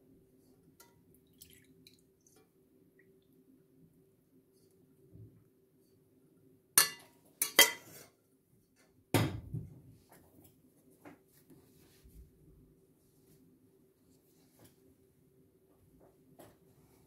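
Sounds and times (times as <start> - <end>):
metal pot and ladle clanking: 6.8 - 8.1.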